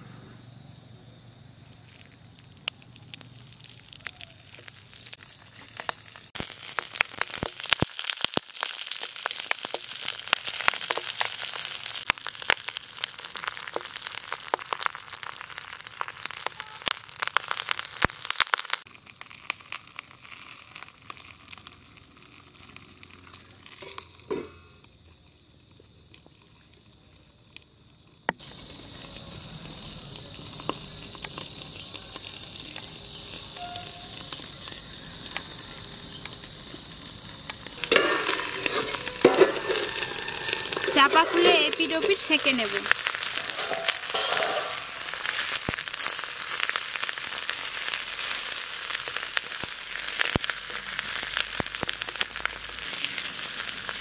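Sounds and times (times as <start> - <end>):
fish frying in oil: 1.6 - 54.0
oil spitting: 37.8 - 45.8.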